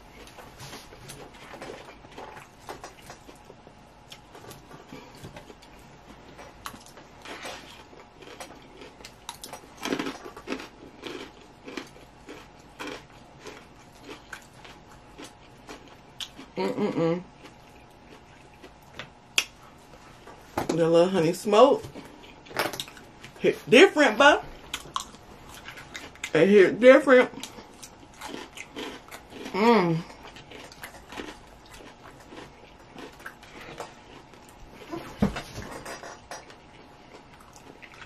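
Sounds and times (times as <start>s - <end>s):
chewing and crunching lettuce: 0.0s - 38.0s
person humming: 16.6s - 17.3s, 29.5s - 30.1s.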